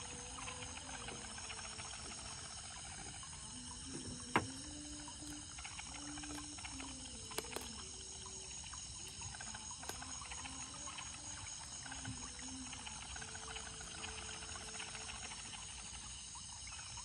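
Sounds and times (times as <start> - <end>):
frogs calling: 0.0 - 17.0
insects buzzing: 0.0 - 17.0
soft clicks of net handling: 7.2 - 7.9.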